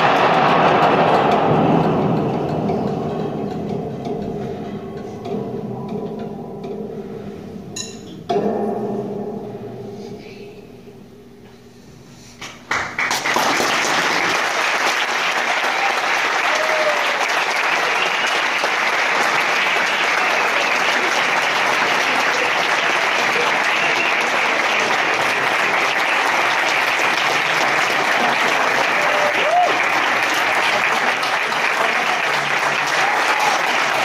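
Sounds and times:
audience applause: 0:00.0 - 0:03.2, 0:12.7 - 0:34.0.

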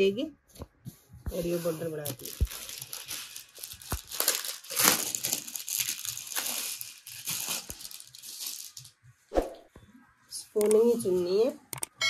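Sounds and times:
plastic packaging crinkling: 0:01.4 - 0:09.0.

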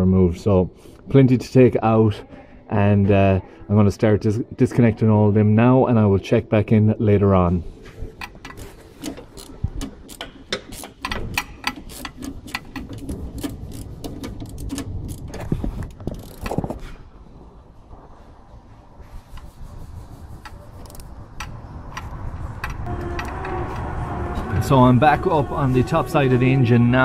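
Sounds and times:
ratchet wrench clicking: 0:08.2 - 0:15.4, 0:16.1 - 0:16.6, 0:20.4 - 0:23.3.

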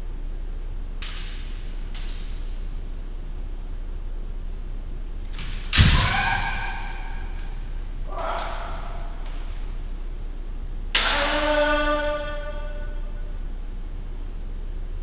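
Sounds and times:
bamboo sword striking armour: 0:05.4 - 0:07.2
person shouting: 0:05.9 - 0:07.4, 0:08.1 - 0:09.4, 0:11.0 - 0:13.0.

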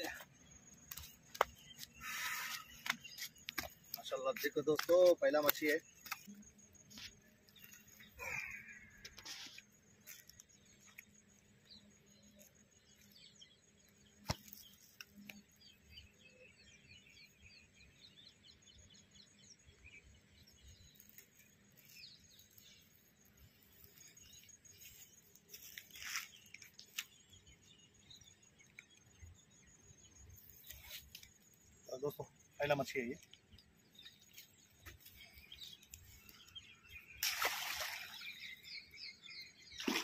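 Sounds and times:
small birds chirping: 0:00.0 - 0:40.0.

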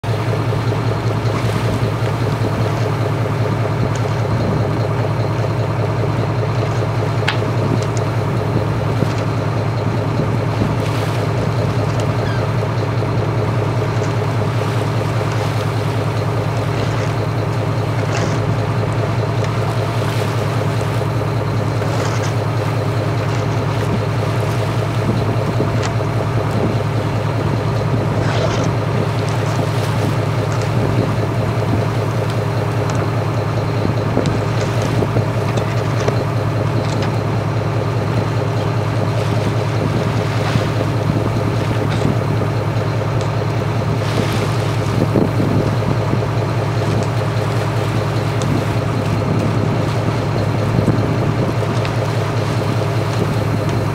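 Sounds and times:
boat engine droning: 0:00.0 - 0:53.9
water noise: 0:00.0 - 0:53.9
light ticks: 0:06.6 - 0:08.1, 0:32.2 - 0:33.1, 0:43.2 - 0:43.6, 0:46.8 - 0:47.2, 0:48.2 - 0:51.0
wind noise: 0:44.1 - 0:46.4, 0:48.4 - 0:51.8.

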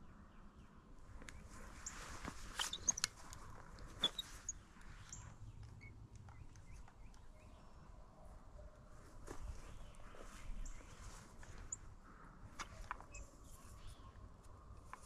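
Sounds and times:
gear clicks and rustles: 0:01.2 - 0:07.2
faint high chirps: 0:04.0 - 0:07.9.

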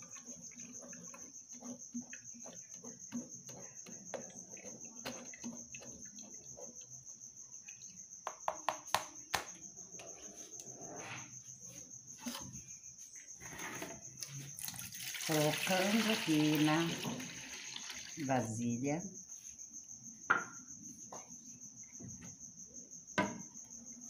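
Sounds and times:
wooden spoon scraping metal sieve: 0:00.0 - 0:06.8
cricket chirping: 0:00.0 - 0:24.0.

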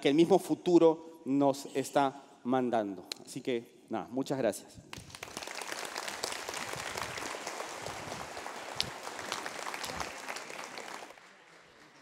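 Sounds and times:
crowd applauding: 0:05.0 - 0:12.0.

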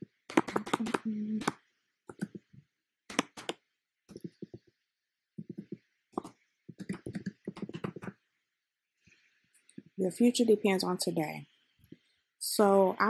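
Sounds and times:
typing on computer keyboard: 0:00.3 - 0:01.0, 0:06.7 - 0:08.1.

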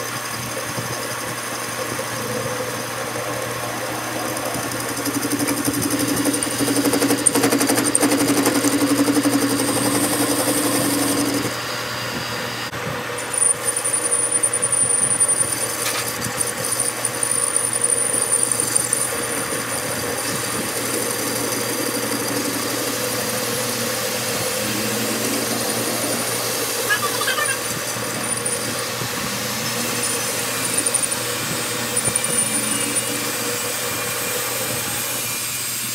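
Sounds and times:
metal lathe humming: 0:00.0 - 0:35.9.

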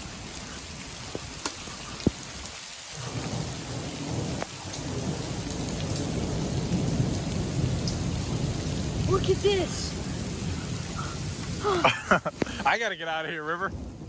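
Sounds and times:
rain pouring on pavement: 0:00.0 - 0:14.0
low thunder rumble: 0:03.0 - 0:14.0.

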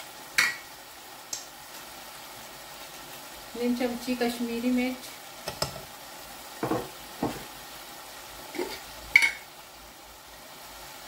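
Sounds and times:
faint steady hiss: 0:00.0 - 0:11.0
spoon knocking a pot: 0:06.6 - 0:07.5, 0:09.2 - 0:09.4.

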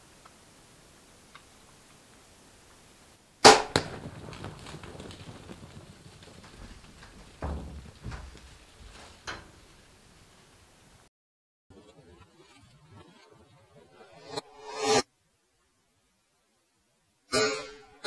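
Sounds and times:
knocks: 0:03.5 - 0:10.0
animals scuffling: 0:03.7 - 0:10.8.

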